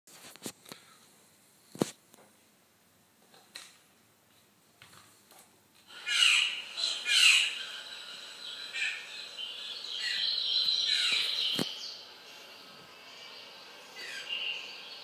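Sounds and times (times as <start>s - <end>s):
birds chirping and twittering: 5.9s - 15.0s.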